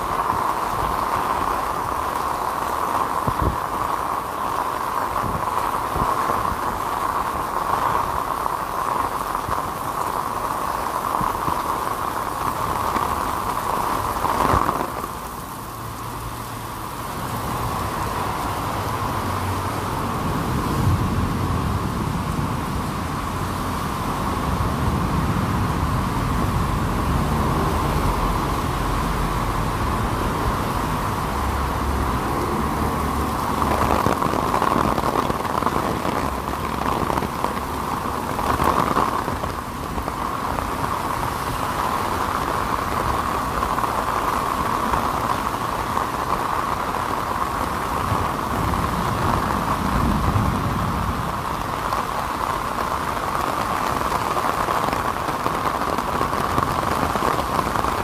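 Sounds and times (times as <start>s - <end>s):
cars passing on wet road: 0.0s - 58.0s
heavy rain on pavement: 0.0s - 58.0s.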